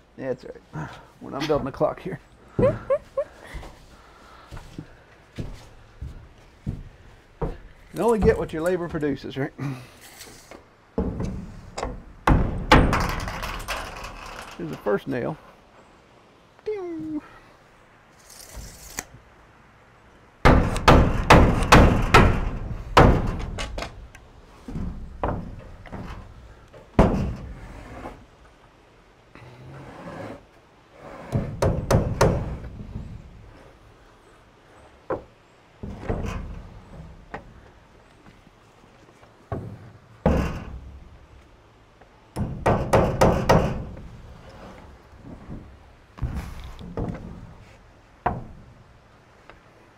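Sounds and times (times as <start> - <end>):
knocks on wood: 11.0 - 13.2, 20.4 - 23.7, 31.4 - 32.7
hammer nailing wooden siding: 11.0 - 14.0, 20.4 - 24.1, 24.7 - 28.1, 31.2 - 33.2, 39.5 - 41.1, 42.3 - 44.2.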